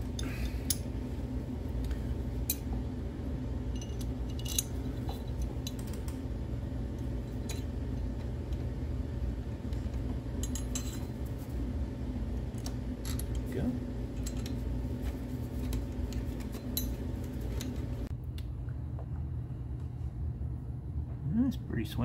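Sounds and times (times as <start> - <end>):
low hum: 0.0 - 22.0.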